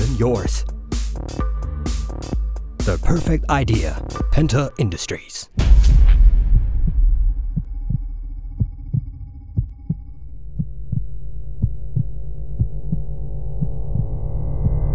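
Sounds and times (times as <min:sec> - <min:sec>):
heartbeat thumps: 0:05.6 - 0:14.9
steady low hum: 0:05.9 - 0:14.9.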